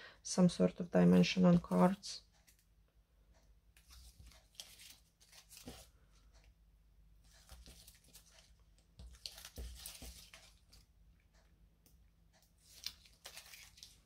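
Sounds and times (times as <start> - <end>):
paper crinkling and rustling: 3.8 - 5.9, 7.3 - 10.9, 12.6 - 14.0.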